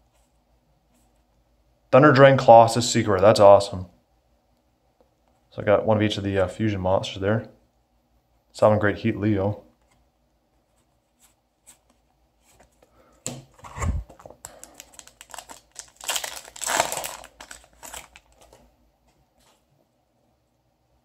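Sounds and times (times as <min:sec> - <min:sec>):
foil pack crinkling and tearing: 0:14.4 - 0:18.6.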